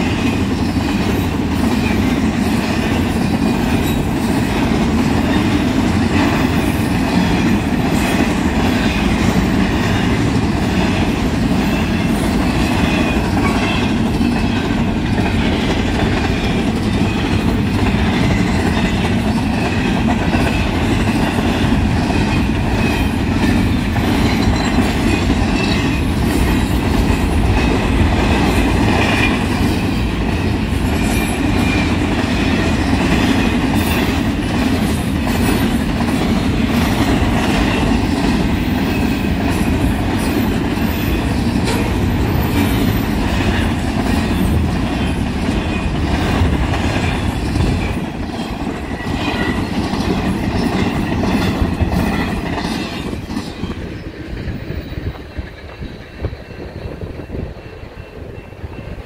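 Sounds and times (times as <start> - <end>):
train wheels rumbling: 0.0 - 59.0
clicking over rail joints: 41.5 - 44.6.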